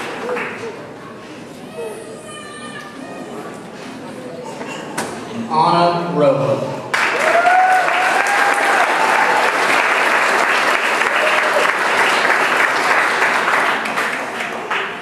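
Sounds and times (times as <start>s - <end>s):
audience clapping and cheering: 6.9s - 15.0s
whoops: 7.1s - 9.5s.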